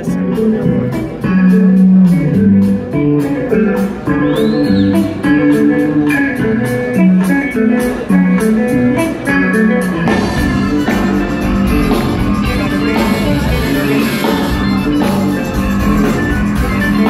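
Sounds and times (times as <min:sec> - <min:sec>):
bass guitar: 0:00.0 - 0:17.0
electric guitar: 0:00.0 - 0:17.0
drum beat: 0:10.1 - 0:17.0.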